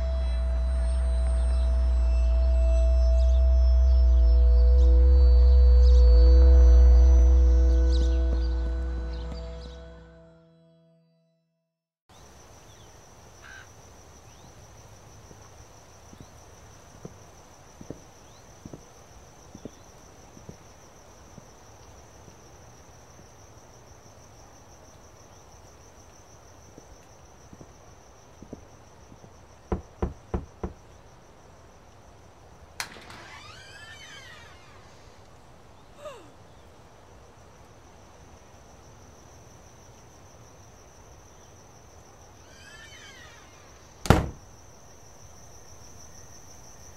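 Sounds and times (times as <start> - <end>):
crickets chirping: 0.0 - 10.2, 12.1 - 46.9
knocks on a door: 29.7 - 30.8, 44.1 - 44.4.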